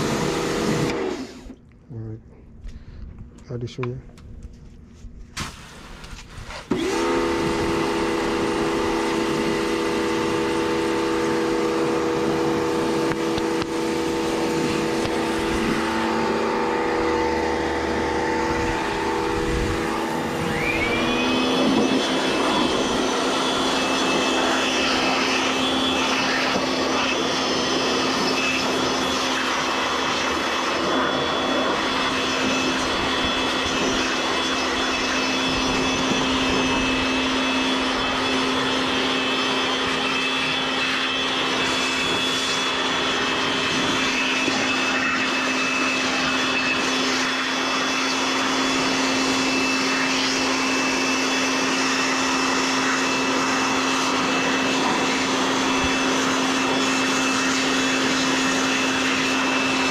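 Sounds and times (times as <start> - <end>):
electric motor humming: 0.0 - 1.6, 6.5 - 59.9
high motor whine: 0.0 - 1.8, 5.9 - 59.9
rushing noise: 11.0 - 32.0.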